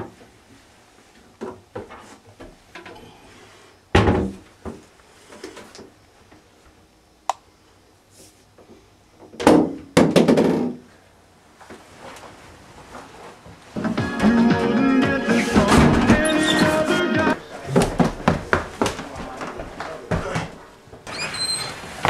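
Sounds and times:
wooden cabinet knocks and thumps: 4.0s - 4.8s
bangs and rattling: 15.3s - 17.0s.

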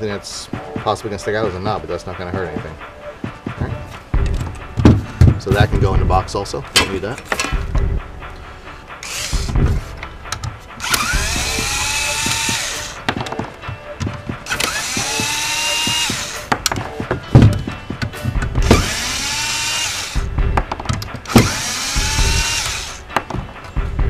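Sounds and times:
clicks and clunks of metal: 6.8s - 7.7s
cordless drill whining: 9.0s - 9.6s, 10.8s - 13.0s, 14.5s - 16.5s, 18.6s - 20.3s, 21.3s - 23.0s.

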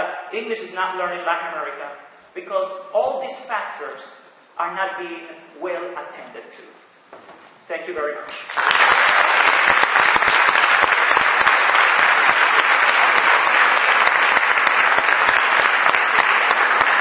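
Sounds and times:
audience applauding: 8.3s - 17.0s.

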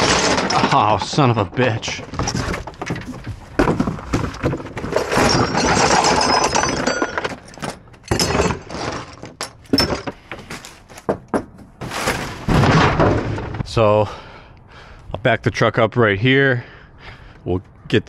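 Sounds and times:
metal parts clinking and rattling: 0.0s - 11.1s
cardboard scraping: 11.8s - 13.2s.

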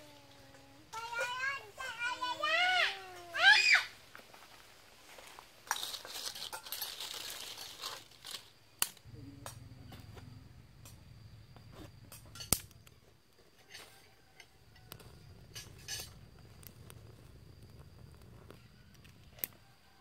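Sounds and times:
dry twigs and leaves crackling: 3.6s - 9.1s, 14.8s - 19.6s
fire popping: 5.6s - 13.4s, 14.6s - 19.6s
small twig fire burning: 10.5s - 13.7s, 14.4s - 19.8s.

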